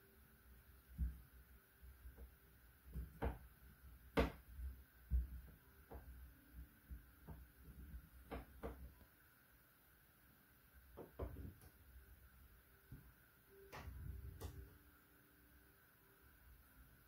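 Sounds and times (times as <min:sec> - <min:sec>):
rolling pin thumps on clay: 0:02.1 - 0:09.0.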